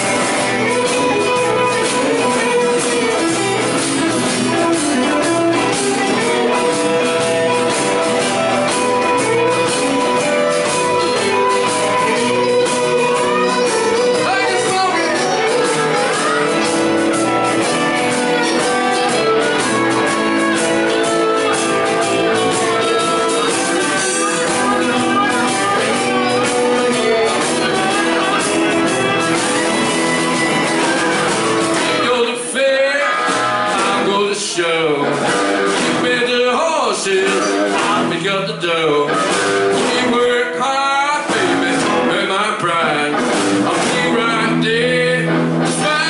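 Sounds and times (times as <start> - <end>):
keyboard: 0.0 - 34.0
bass guitar: 0.0 - 46.0
drums: 0.0 - 46.0
electric and acoustic guitars: 0.0 - 46.0
person singing: 0.0 - 46.0.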